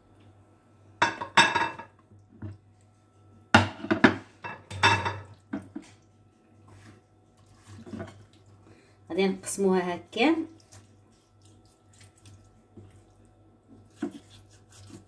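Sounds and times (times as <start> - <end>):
board and plate clattering on countertop: 3.6 - 5.8.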